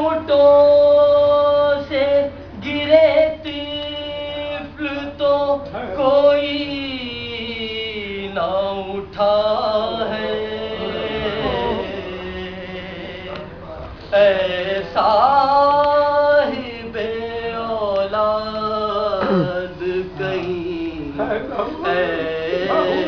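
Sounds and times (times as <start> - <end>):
man chanting unaccompanied: 0.0 - 23.0.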